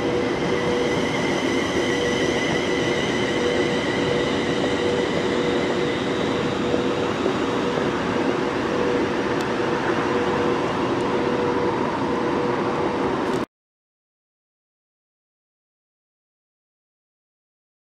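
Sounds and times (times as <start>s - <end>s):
electric train running with hum: 0.0s - 13.5s.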